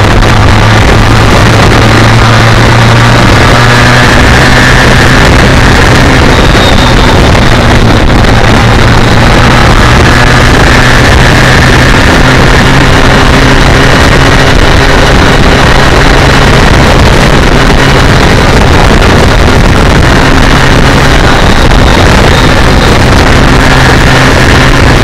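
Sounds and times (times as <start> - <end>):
motorcycle engine cruising: 0.0 - 25.0
wind rush on microphone: 0.0 - 25.0.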